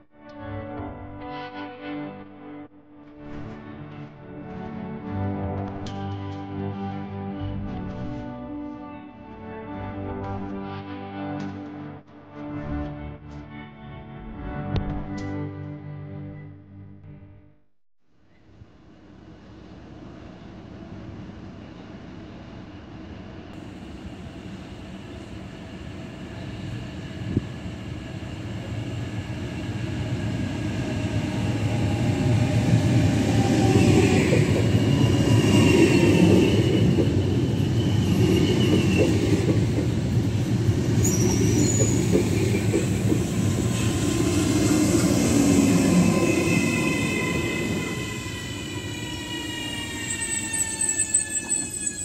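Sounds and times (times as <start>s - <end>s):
train wheels rumbling on rails: 23.4s - 52.0s
train brakes whining: 40.8s - 52.0s.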